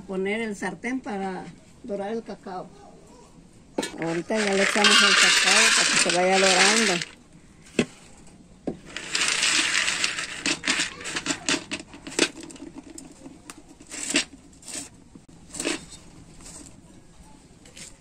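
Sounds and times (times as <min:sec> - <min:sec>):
beans rattling in a pan: 0:03.8 - 0:07.2, 0:08.8 - 0:15.0.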